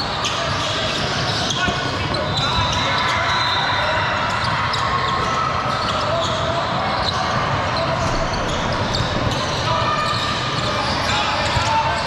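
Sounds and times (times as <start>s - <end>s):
crowd chatter: 0.0s - 12.0s
short high squeaks: 0.2s - 12.0s
basketball bouncing on court: 7.9s - 11.7s.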